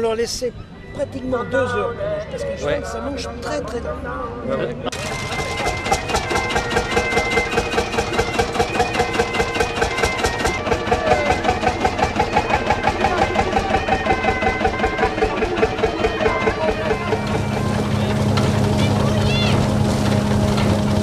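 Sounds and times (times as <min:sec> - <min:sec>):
regular mechanical knocking: 0:04.9 - 0:21.0
threshing machine hum: 0:04.9 - 0:21.0.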